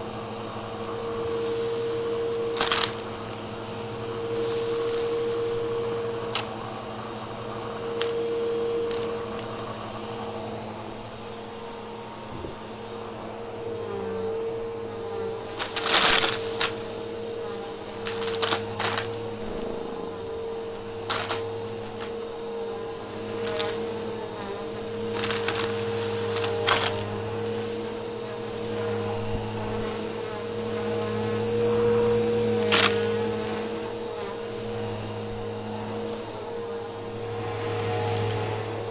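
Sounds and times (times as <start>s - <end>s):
vacuum cleaner motor hum: 0.0s - 38.9s
debris crackling in nozzle: 2.5s - 3.0s, 15.5s - 16.9s, 18.0s - 19.2s, 21.0s - 22.1s, 23.4s - 24.0s, 25.1s - 27.1s.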